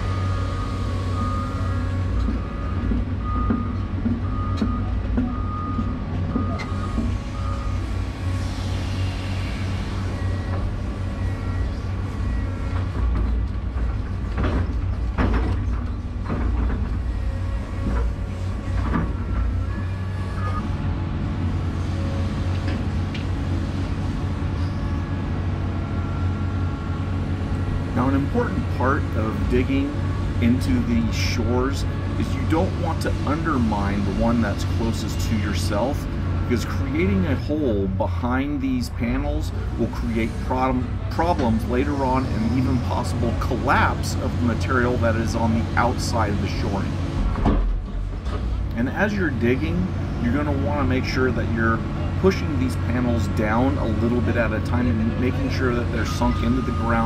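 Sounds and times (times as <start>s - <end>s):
backup alarm beeping: 0.0s - 7.9s
excavator diesel engine running: 0.0s - 57.0s
metal clanks and knocks: 12.8s - 19.9s, 47.2s - 48.6s.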